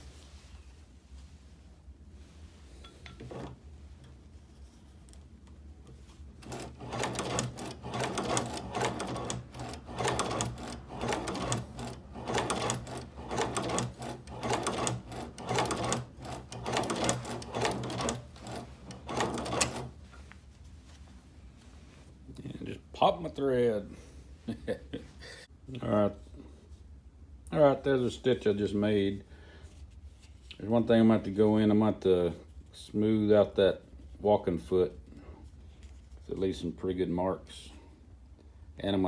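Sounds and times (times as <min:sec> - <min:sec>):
sewing machine clacking: 0:06.4 - 0:19.9.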